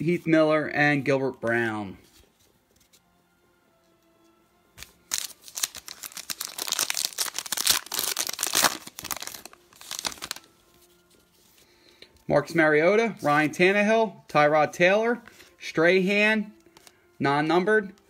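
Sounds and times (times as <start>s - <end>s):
plastic wrapper crinkling and tearing: 4.8s - 10.5s.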